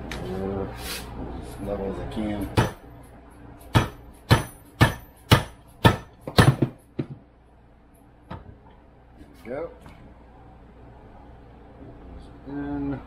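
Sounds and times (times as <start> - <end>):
hammer striking metal yoke: 3.7 - 6.8.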